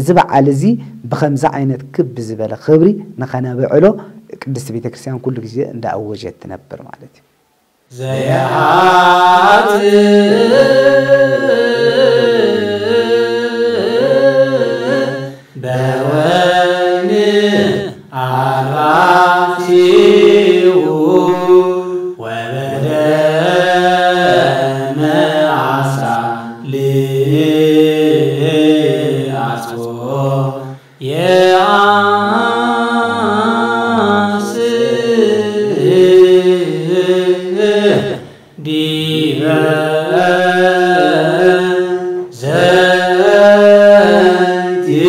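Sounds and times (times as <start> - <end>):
voices chanting a hymn: 7.9 - 45.0.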